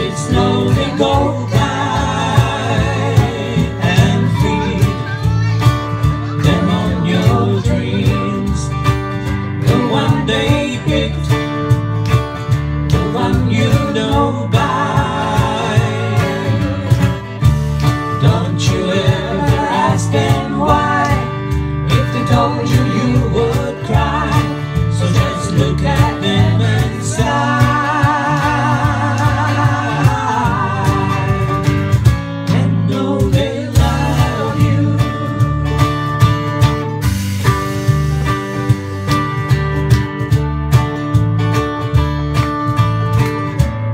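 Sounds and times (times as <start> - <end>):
voices singing in harmony: 0.0 - 5.3, 6.0 - 8.8, 9.5 - 11.5, 12.9 - 36.0
electric guitar: 0.0 - 43.9
strummed acoustic guitar: 0.0 - 43.9.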